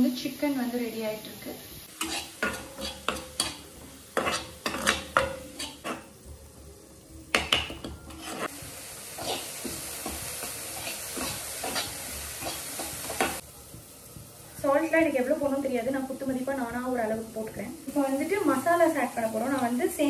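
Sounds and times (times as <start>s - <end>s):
vegetables sizzling in oil: 0.0s - 20.0s
metal spatula scraping a pan: 1.9s - 6.2s, 7.3s - 8.6s, 9.2s - 13.4s.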